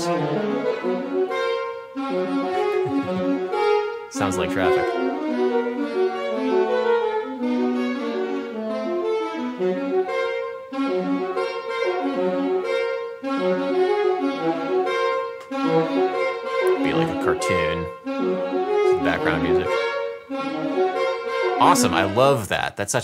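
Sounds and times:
saxophone duet: 0.0s - 22.9s.

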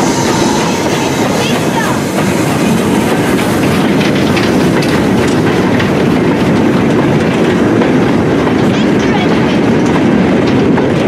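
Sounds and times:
train wheels rumbling on rail: 0.0s - 11.0s
wheels clicking over rail joints: 3.1s - 11.0s.

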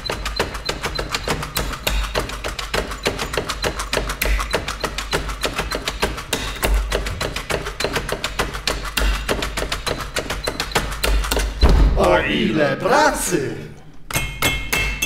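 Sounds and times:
keyboard clicks and taps: 0.0s - 11.6s
low thuds: 11.6s - 12.1s.

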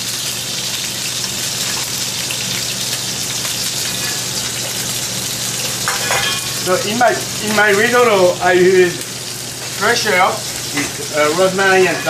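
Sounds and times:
scallops sizzling in a pan: 0.0s - 12.0s.

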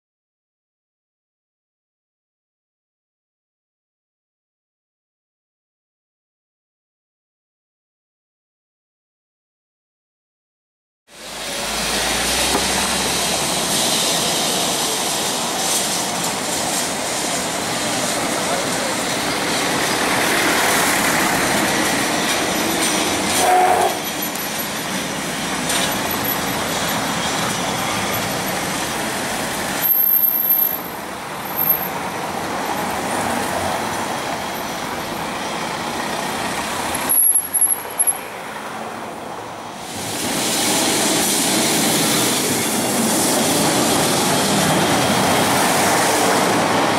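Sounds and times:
passing cars: 11.1s - 46.9s
tram running on rails: 11.1s - 46.9s
wheels squealing on rails: 11.1s - 46.9s.

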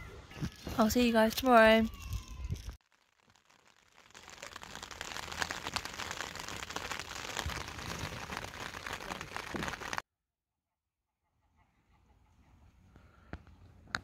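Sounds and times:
rain pattering on tent: 2.8s - 10.0s.

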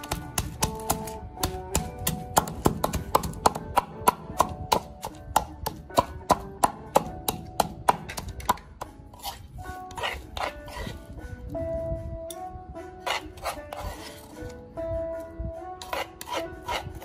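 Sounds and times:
wooden pestle pounding in mortar: 0.0s - 9.4s.

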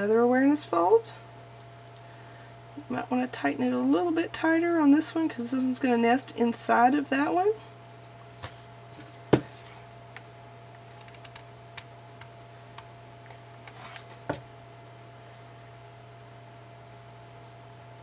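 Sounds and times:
steady low hum: 0.0s - 18.0s
small clicks and taps: 11.0s - 13.8s.

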